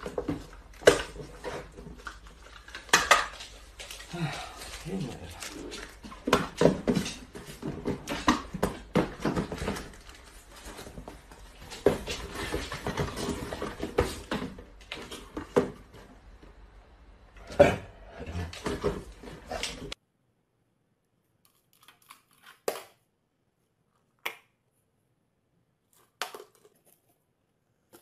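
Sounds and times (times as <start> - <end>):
cardboard boxes knocking and rustling: 0.0 - 2.4, 6.0 - 16.2.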